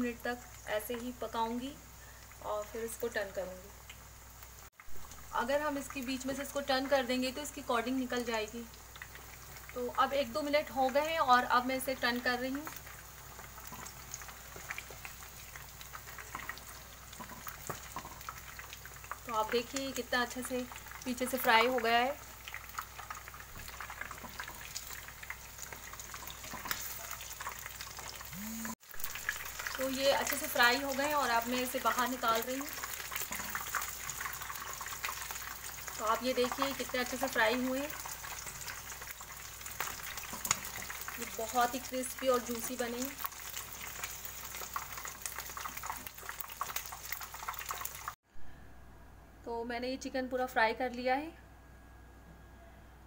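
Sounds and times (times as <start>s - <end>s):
chicken deep-frying in hot oil: 0.0s - 48.2s
slotted spoon stirring in oil: 12.6s - 19.8s, 20.4s - 28.3s, 29.0s - 48.1s.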